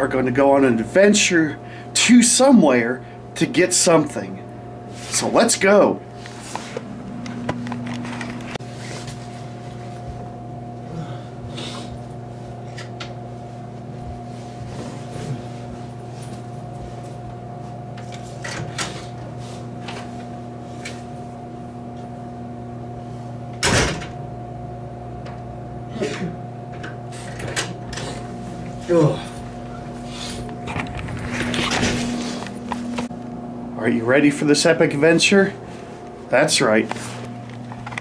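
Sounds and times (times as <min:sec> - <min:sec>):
steady low hum: 0:00.0 - 0:38.0
door shutting with a bang: 0:23.6 - 0:24.2.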